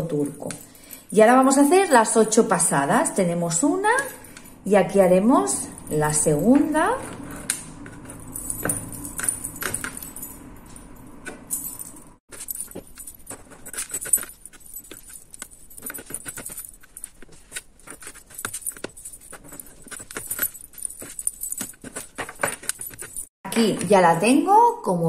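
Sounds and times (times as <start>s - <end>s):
cord rustling and clicking: 6.4s - 23.9s.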